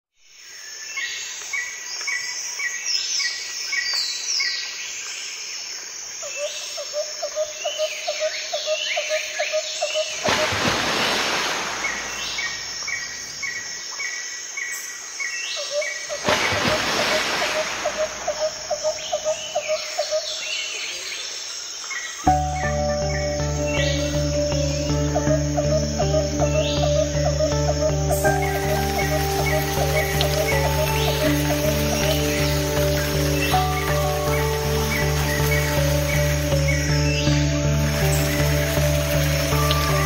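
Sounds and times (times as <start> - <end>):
insects: 0.2 - 40.0
birds chirping and calling: 15.6 - 21.3, 21.9 - 40.0.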